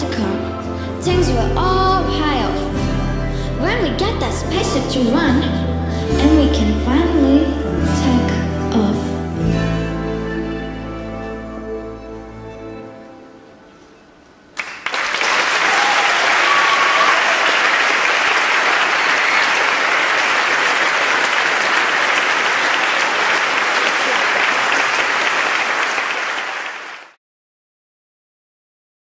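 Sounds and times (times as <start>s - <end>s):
audience applause: 14.6s - 27.2s.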